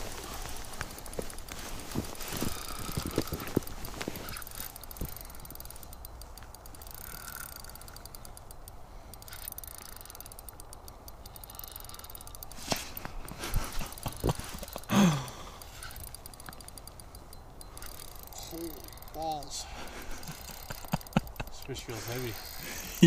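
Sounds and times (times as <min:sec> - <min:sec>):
fishing reel ratcheting: 0:00.2 - 0:23.0
sharp clicks: 0:02.6 - 0:19.4.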